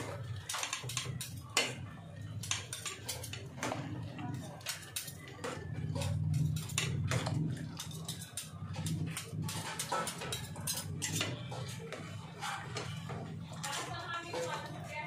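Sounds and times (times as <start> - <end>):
metal utensils clinking in pot: 0.0 - 15.0.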